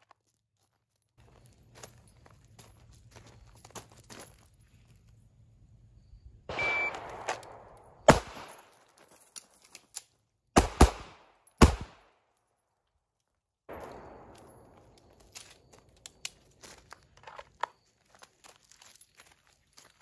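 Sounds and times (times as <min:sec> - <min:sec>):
feet scuffling on gravel: 0:00.0 - 0:05.2, 0:13.8 - 0:20.0
pistol shots: 0:06.5 - 0:08.8, 0:10.6 - 0:12.1, 0:13.7 - 0:15.3.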